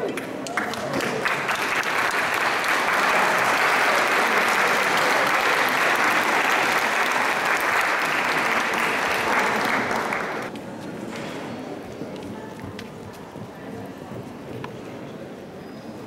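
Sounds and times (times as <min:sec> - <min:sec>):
audience applauding: 0:00.0 - 0:10.5.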